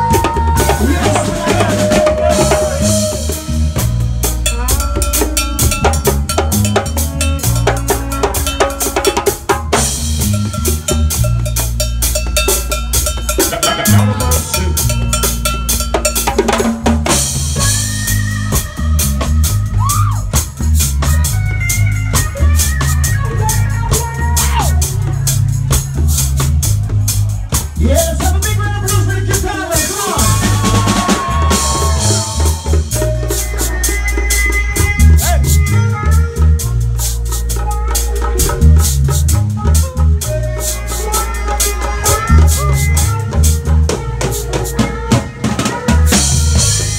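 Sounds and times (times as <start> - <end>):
drum kit with rimshots: 0.0 - 46.9
electric guitar: 0.0 - 46.9
heavy bass line: 0.0 - 46.9.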